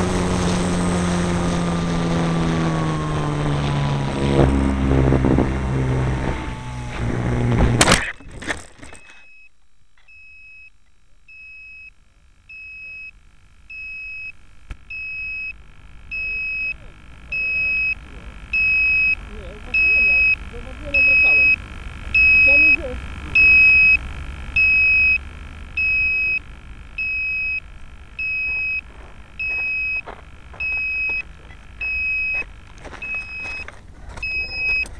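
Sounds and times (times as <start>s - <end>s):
model plane motor and propeller: 0.0s - 9.1s, 13.8s - 34.9s
faint clicks and rustles: 6.9s - 11.4s, 18.0s - 34.9s
clatter of tumbling model: 7.8s - 9.2s
high electronic beeps: 10.1s - 34.9s.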